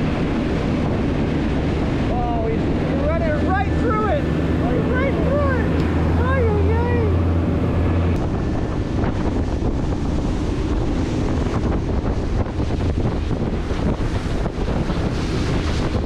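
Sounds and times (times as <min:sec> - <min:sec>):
boat engines droning: 0:00.0 - 0:16.0
sea wash: 0:00.0 - 0:16.0
wind buffeting microphone: 0:00.0 - 0:16.0.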